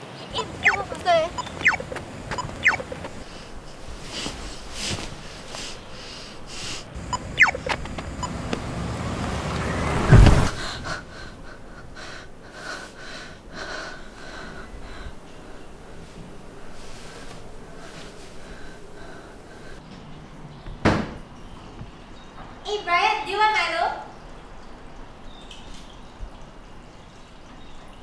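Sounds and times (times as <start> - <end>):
car rushing past: 7.0 - 10.9
person breathing hard and gasping: 10.5 - 15.7.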